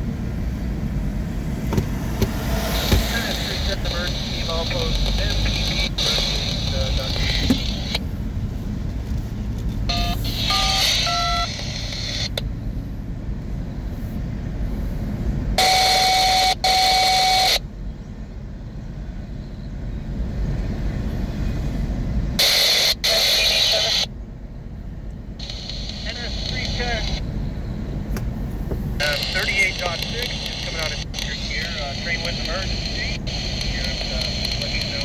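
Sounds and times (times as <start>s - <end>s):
electronic tone with static: 2.8s - 8.0s, 9.9s - 12.4s, 15.6s - 17.6s, 22.4s - 24.1s, 25.4s - 27.3s, 29.0s - 35.0s
touch-tone dialing tones: 9.9s - 12.3s, 15.6s - 17.6s.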